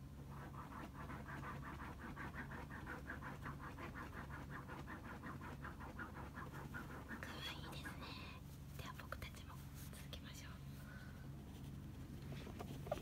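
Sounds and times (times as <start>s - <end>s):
dog scratching fabric cushion: 0.2s - 7.8s.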